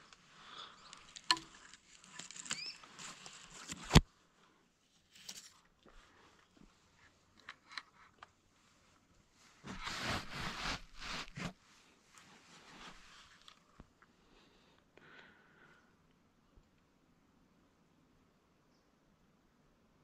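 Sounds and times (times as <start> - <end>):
faint handling rustles and clicks: 0.0 - 4.1, 4.8 - 14.9.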